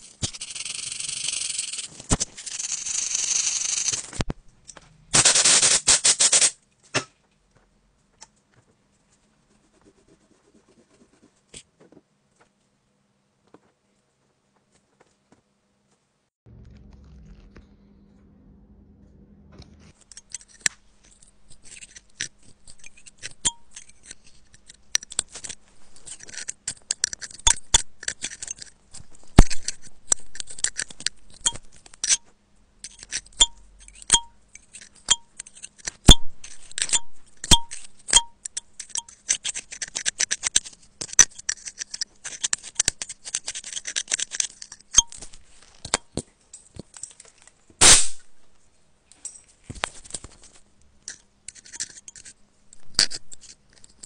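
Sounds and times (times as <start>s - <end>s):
metal pick scraping in charging port: 32.8s - 45.3s.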